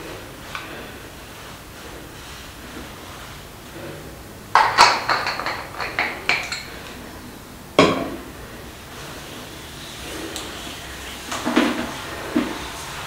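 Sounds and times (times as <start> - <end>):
bottle cap clicks and rattles: 4.6 - 6.7.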